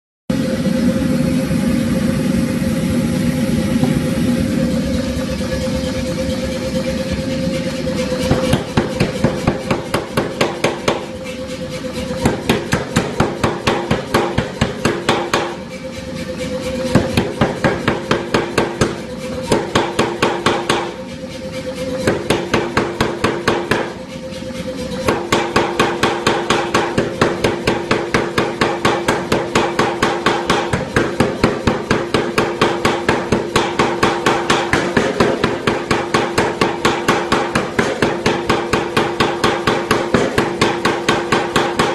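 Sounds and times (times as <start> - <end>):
power hammer striking hot steel: 0.3 - 41.9
steady machine hum: 0.3 - 41.9.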